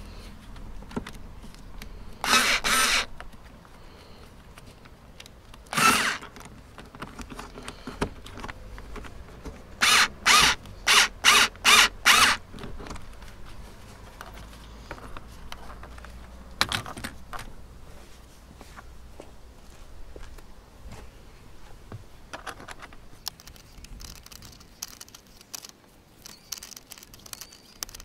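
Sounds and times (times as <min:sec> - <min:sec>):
cordless screwdriver bursts: 0:02.2 - 0:03.1, 0:05.7 - 0:06.3, 0:09.8 - 0:12.4.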